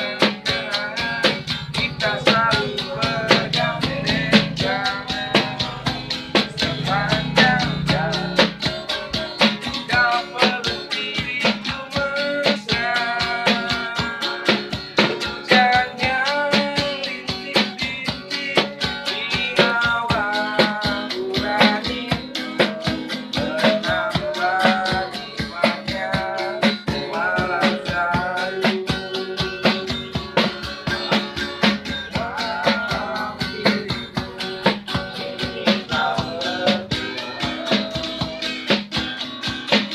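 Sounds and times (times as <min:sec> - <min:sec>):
man singing: 0:00.0 - 0:30.2, 0:30.8 - 0:38.9
small drum tapping a beat: 0:00.0 - 0:39.9
strummed acoustic guitar: 0:00.0 - 0:39.9.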